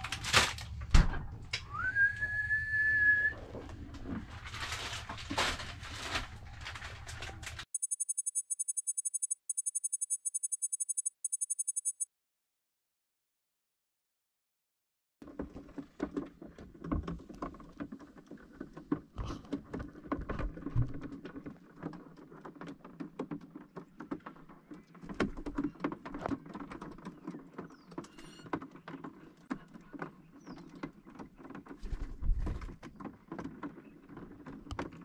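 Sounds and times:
birds' feet tapping on a roof: 0:15.2 - 0:35.0.

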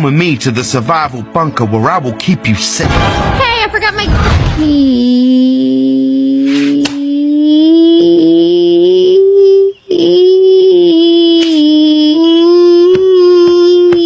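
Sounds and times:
person singing long held notes: 0:04.6 - 0:14.0.

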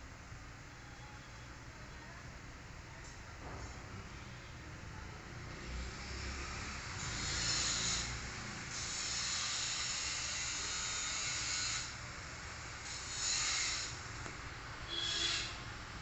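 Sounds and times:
road traffic rushing: 0:05.4 - 0:10.3, 0:13.9 - 0:16.0.

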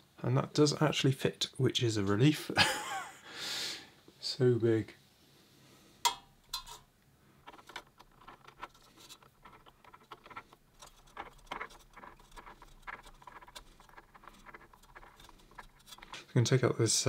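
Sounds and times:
handling noise on metal heatsink: 0:06.0 - 0:06.9
small ticks and scratches: 0:07.4 - 0:16.6.

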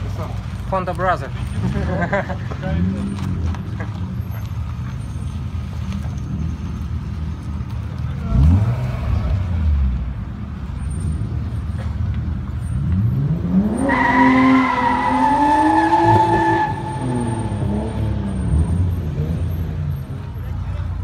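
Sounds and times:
car engine revving: 0:08.2 - 0:20.2.

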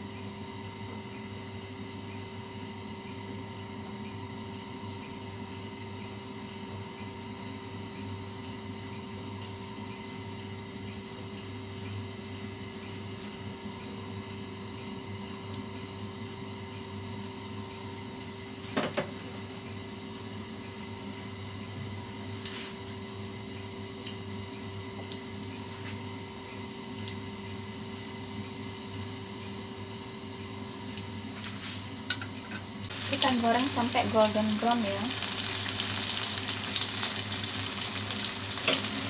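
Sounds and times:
fritters sizzling in hot oil: 0:18.7 - 0:23.1, 0:26.8 - 0:39.0.

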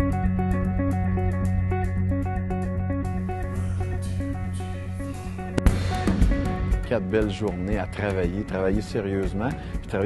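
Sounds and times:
bass line: 0:00.0 - 0:08.0
drum and cymbal hit: 0:05.6 - 0:06.7.

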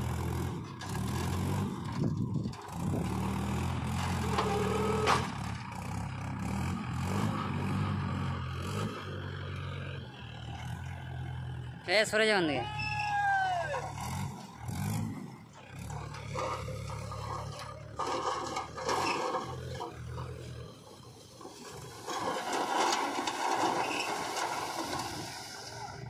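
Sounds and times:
tractor diesel engine running: 0:00.0 - 0:26.0
soil sliding out of trailer: 0:00.6 - 0:05.6, 0:15.7 - 0:26.0.

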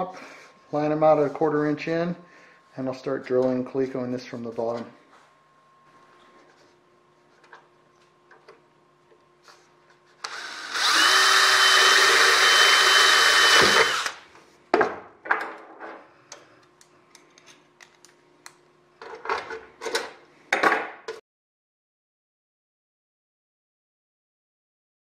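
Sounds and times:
cordless drill whining: 0:10.2 - 0:14.2.

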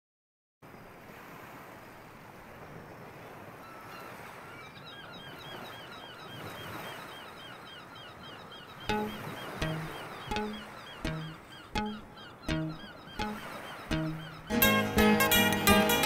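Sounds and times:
birds chirping: 0:03.6 - 0:16.0.

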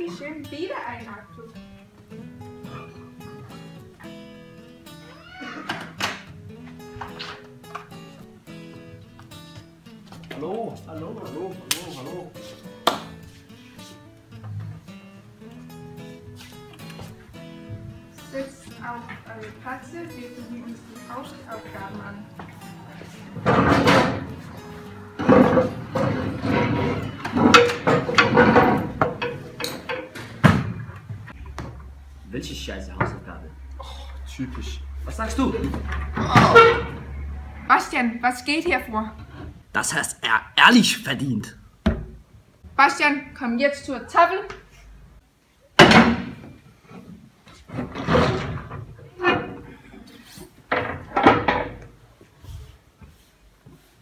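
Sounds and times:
chairs scraping and knocking on desks: 0:05.7 - 0:08.0, 0:14.4 - 0:14.9, 0:16.4 - 0:32.0, 0:35.2 - 0:37.7, 0:38.6 - 0:40.0, 0:45.8 - 0:54.0.

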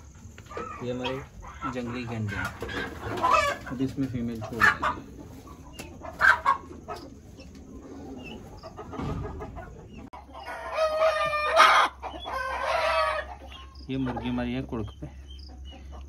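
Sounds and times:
chickens clucking: 0:00.0 - 0:16.0
rooster crowing: 0:10.4 - 0:13.3.

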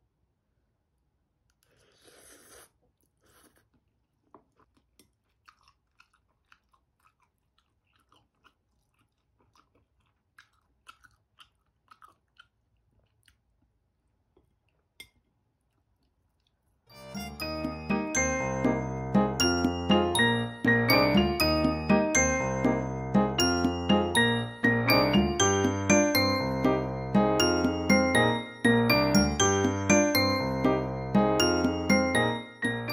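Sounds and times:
noodle slurping: 0:01.6 - 0:12.6
soft chewing clicks: 0:03.0 - 0:16.9.

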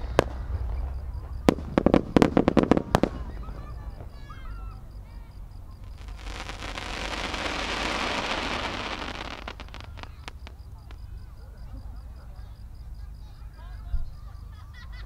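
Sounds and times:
firework shells bursting: 0:00.0 - 0:04.2, 0:05.8 - 0:11.1
rushing hiss: 0:05.9 - 0:10.5.

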